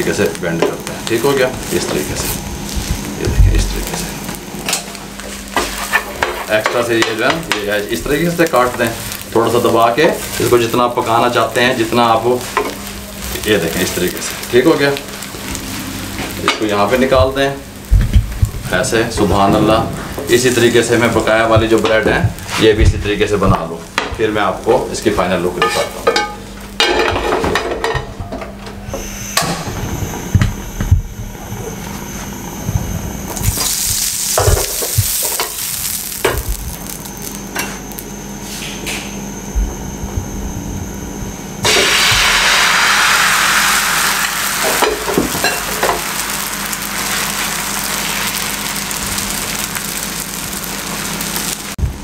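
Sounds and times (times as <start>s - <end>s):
egg sizzling in frying pan: 0.0s - 27.0s, 33.3s - 38.5s, 41.6s - 51.8s
utensils knocking on pan: 25.6s - 28.1s.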